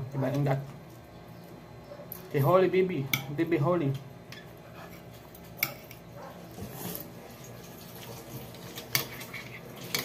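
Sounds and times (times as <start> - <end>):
quiet steady hum: 0.0 - 10.0.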